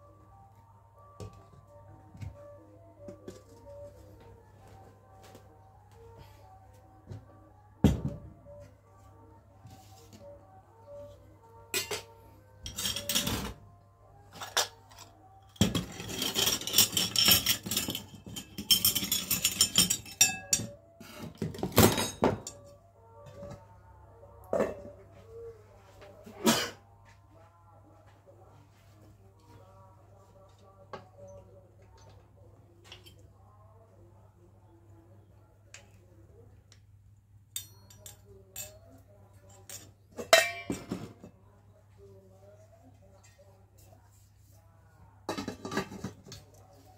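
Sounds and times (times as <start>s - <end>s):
dishes and utensils clattering: 11.7s - 13.6s, 14.3s - 22.7s, 37.6s - 41.3s, 45.3s - 46.5s.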